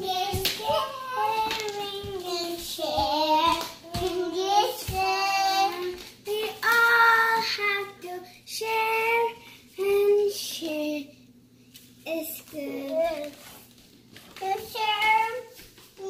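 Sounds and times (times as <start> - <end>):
girl singing in a high voice: 0.0 - 11.1, 12.1 - 13.4, 14.4 - 16.0.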